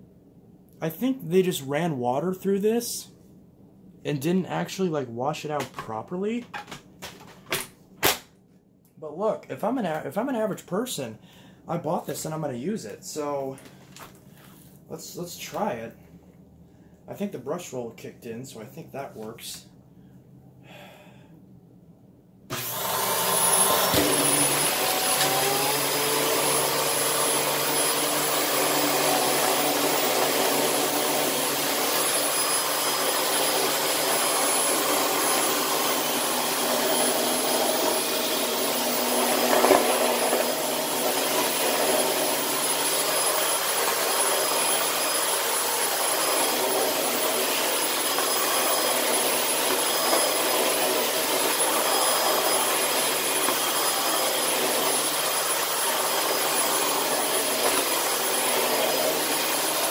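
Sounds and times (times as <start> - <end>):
vacuum cleaner running: 22.5 - 59.9.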